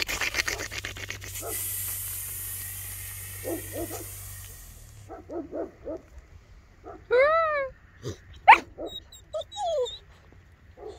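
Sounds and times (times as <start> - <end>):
puppy yelping: 8.0 - 10.2
puppy whining: 8.0 - 10.9.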